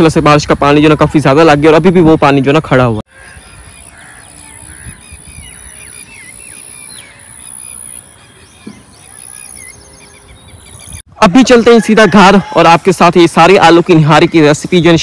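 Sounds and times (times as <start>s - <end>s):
small birds chirping: 0.0s - 11.1s.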